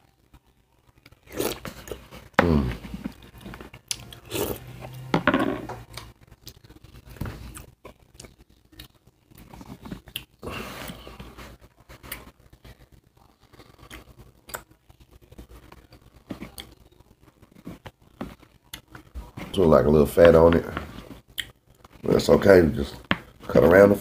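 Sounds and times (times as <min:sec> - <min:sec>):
man chewing: 0:00.4 - 0:05.1, 0:05.9 - 0:12.3, 0:13.2 - 0:16.8, 0:20.9 - 0:22.0
man humming mmm: 0:02.4 - 0:03.0.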